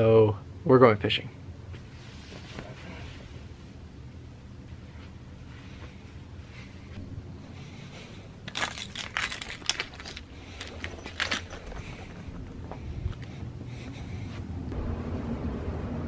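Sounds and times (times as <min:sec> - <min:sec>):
keys jingling: 0:08.4 - 0:13.3
sharp metallic clinks: 0:08.5 - 0:12.4.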